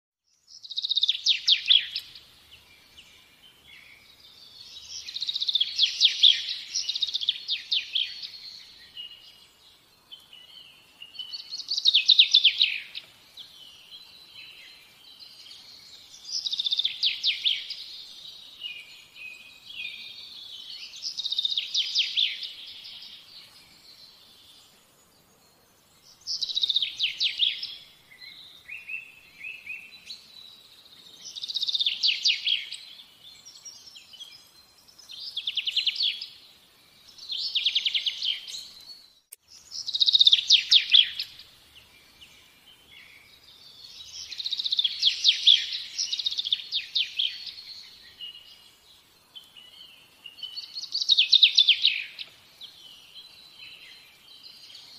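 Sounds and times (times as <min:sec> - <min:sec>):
songbird trilling: 0:10.5 - 0:13.1, 0:39.6 - 0:41.4, 0:43.8 - 0:48.4, 0:49.7 - 0:52.3.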